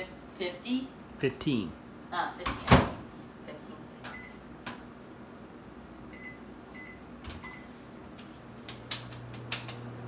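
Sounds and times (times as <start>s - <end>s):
microwave humming: 1.8s - 10.0s
microwave keypad beeps: 6.1s - 7.7s.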